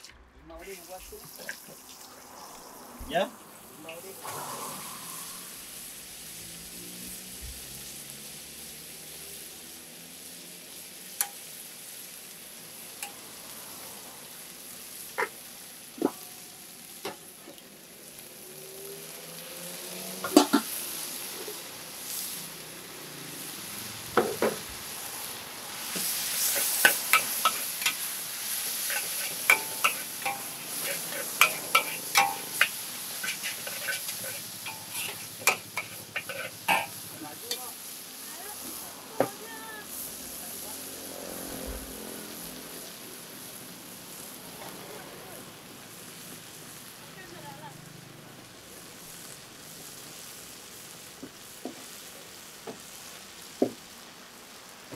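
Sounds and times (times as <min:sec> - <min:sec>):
food sizzling in a hot pan: 0:00.0 - 0:54.9
spatula knocking and scraping pan: 0:20.2 - 0:20.7, 0:26.5 - 0:28.0, 0:28.8 - 0:37.6.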